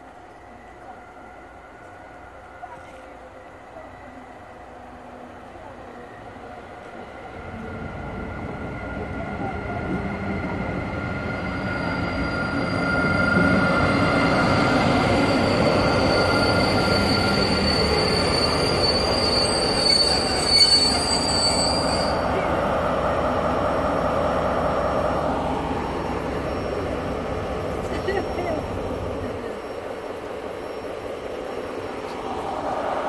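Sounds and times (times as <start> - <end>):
high-pitched brake squealing: 11.2 - 22.3, 26.2 - 28.5.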